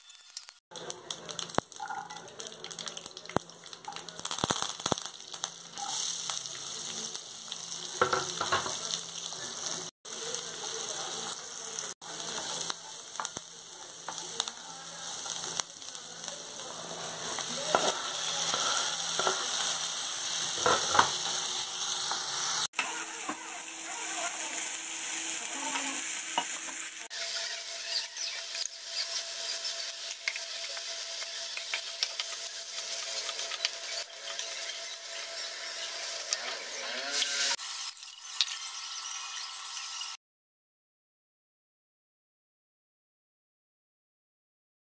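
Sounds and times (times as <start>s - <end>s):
oil sizzling in a pan: 0.0s - 40.2s
spatula scraping a pan: 16.8s - 23.3s.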